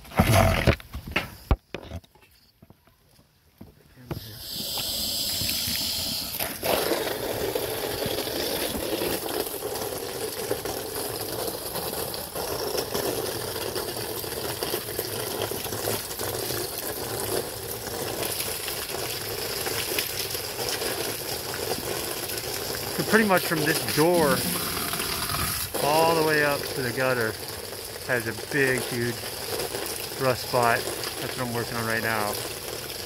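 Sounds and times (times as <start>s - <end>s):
water spraying onto siding: 4.1s - 33.0s.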